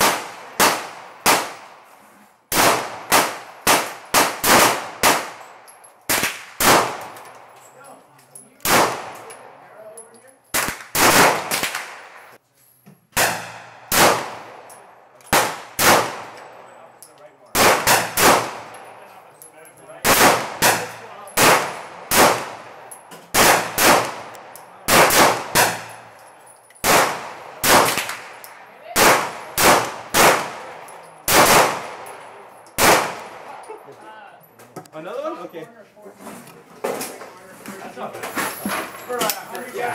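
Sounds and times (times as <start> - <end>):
pistol shots echoing: 0.0 - 1.9, 2.5 - 7.5, 8.6 - 9.6, 10.5 - 12.4, 13.2 - 16.7, 17.5 - 19.0, 20.0 - 26.2, 26.8 - 33.6.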